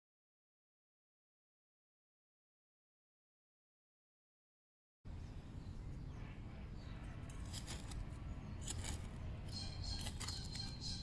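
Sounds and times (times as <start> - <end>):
bird calling high notes: 9.5 - 11.0.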